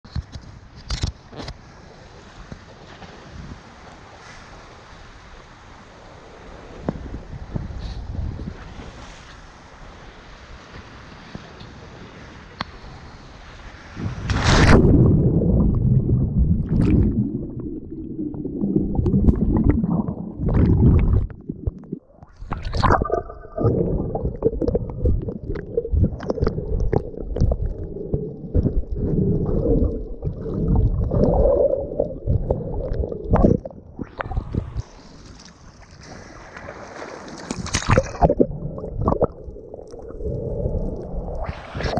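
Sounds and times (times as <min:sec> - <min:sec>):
underwater rushing and bubbling: 0:13.8 - 0:41.9
underwater clicks and knocks: 0:20.4 - 0:27.9
body splashing into water: 0:35.9 - 0:39.3.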